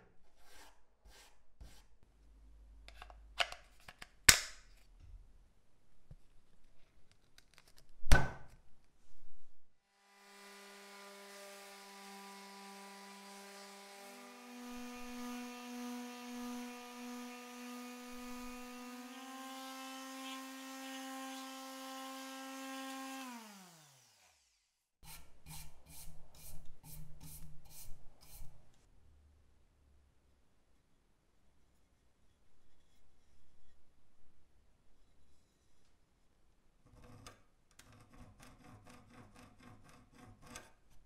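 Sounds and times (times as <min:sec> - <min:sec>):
sander motor humming: 0:10.0 - 0:24.7.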